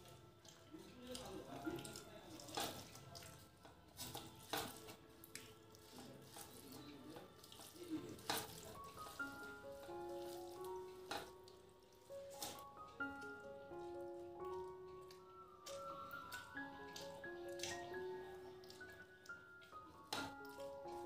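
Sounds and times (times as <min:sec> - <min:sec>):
soft squelching of food mixing: 0:00.0 - 0:21.0.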